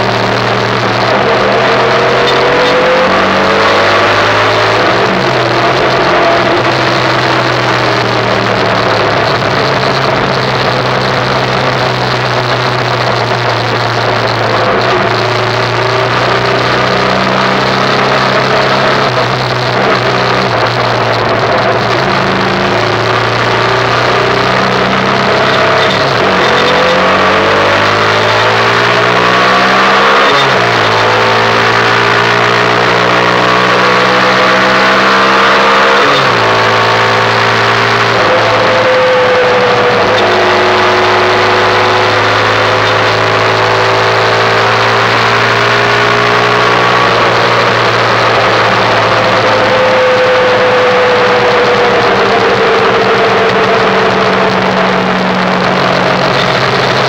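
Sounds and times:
motorcycle engine running: 0.0s - 57.0s
wind and road rush: 0.0s - 57.0s.

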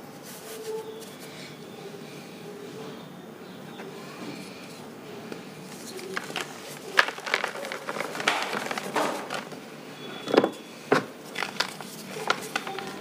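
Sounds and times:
hands crumbling powder blocks: 5.7s - 9.6s, 11.3s - 13.0s.

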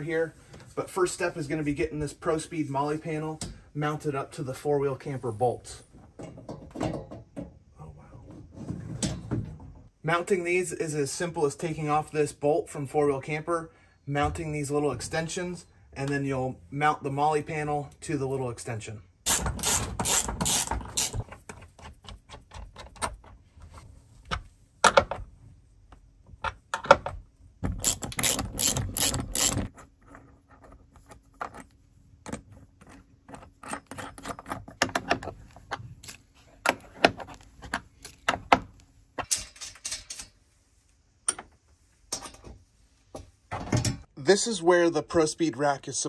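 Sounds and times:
bolts and metal clinking: 4.2s - 7.7s, 19.3s - 44.2s
ratchet wrench clicking: 27.8s - 29.6s.

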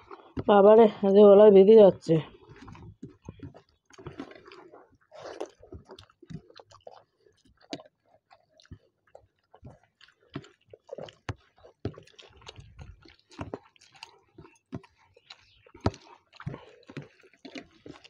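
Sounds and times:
people chewing and lip-smacking: 0.0s - 0.5s, 2.3s - 18.0s
rice squelching mixed by hand: 2.3s - 18.0s.

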